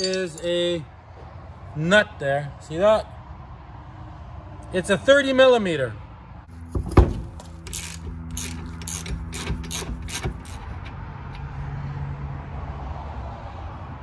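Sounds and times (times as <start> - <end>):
hub nut cracking loose: 6.6 - 11.5
ratchet wrench clicking: 7.1 - 11.4.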